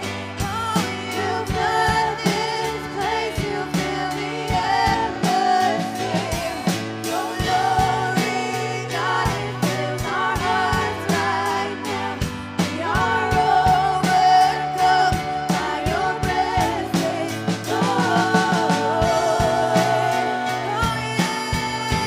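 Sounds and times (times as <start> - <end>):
band with drums and bass: 0.0 - 22.0
woman singing into microphone: 0.0 - 22.0.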